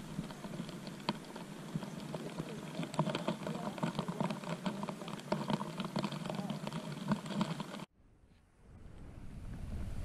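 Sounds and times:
grass and clothing rustling: 0.0 - 7.9.

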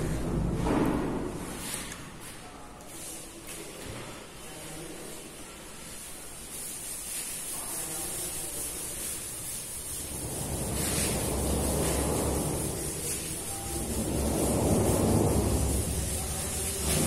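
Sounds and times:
eraser scrubbing a blackboard: 5.6 - 17.0.

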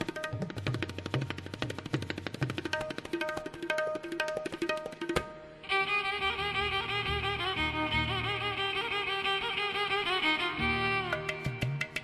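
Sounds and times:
violin melody with sliding pitch: 5.6 - 12.0.

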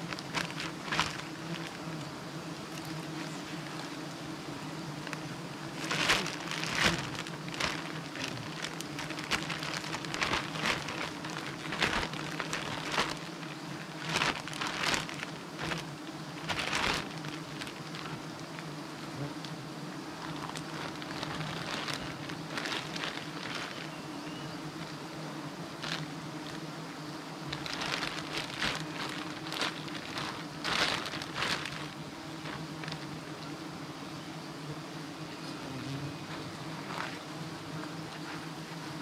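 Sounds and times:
plastic bag rustling: 0.0 - 1.9, 5.0 - 18.7, 20.2 - 24.0, 25.8 - 26.6, 27.4 - 33.2, 36.3 - 37.2
bees buzzing: 0.0 - 39.0.

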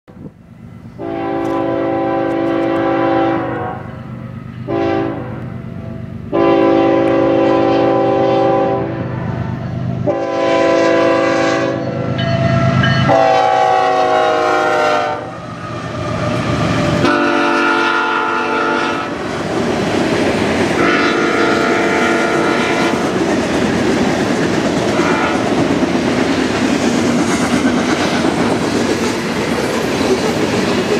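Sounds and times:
locomotive horn blasts: 1.0 - 3.9, 4.6 - 5.5, 6.3 - 9.3, 10.0 - 15.4, 17.0 - 19.2, 20.8 - 23.2, 24.9 - 25.5.

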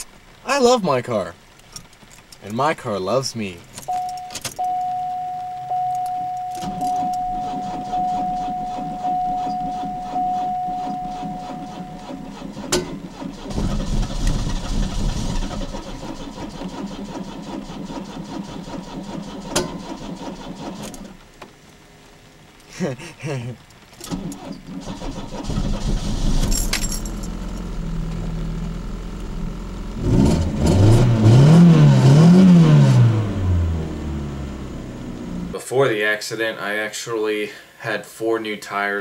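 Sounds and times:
high warning tone: 3.9 - 12.9
starter cranking car engine: 6.6 - 21.1, 24.0 - 26.7.

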